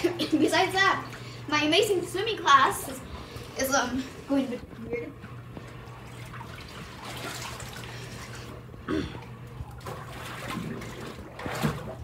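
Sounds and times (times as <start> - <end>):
pool water sloshing: 0.0 - 12.0
water splashes: 5.6 - 8.6, 9.2 - 12.0.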